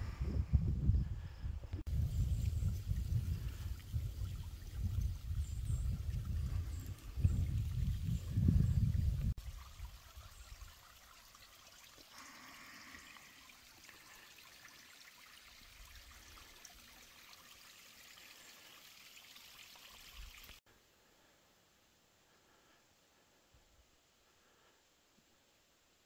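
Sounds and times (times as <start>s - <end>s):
wind buffeting microphone: 0.0s - 10.3s
stream trickling: 1.8s - 20.6s.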